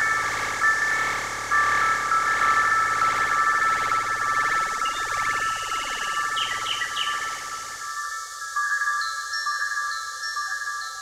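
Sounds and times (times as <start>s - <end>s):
high electronic drone: 0.0s - 8.0s.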